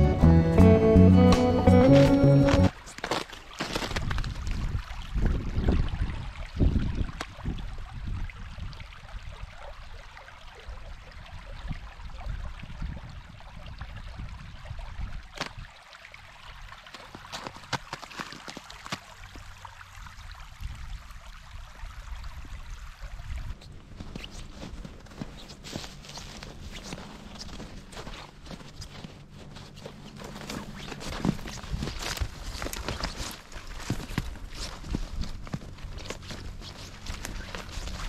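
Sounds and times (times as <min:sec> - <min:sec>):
water trickling over gravel: 0:02.7 - 0:38.0
wind rumbling on microphone: 0:03.8 - 0:09.5, 0:11.1 - 0:15.7, 0:20.0 - 0:38.0.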